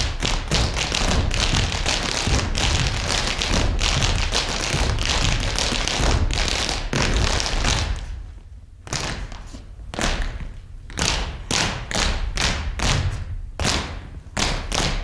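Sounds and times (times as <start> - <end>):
feet stomping on stage floor: 0.0 - 8.2.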